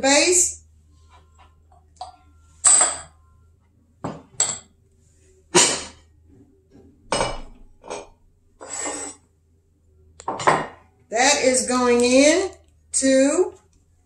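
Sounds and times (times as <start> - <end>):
dishes clinking on counter: 1.7 - 3.2, 4.0 - 4.7, 7.1 - 9.2, 10.2 - 10.8.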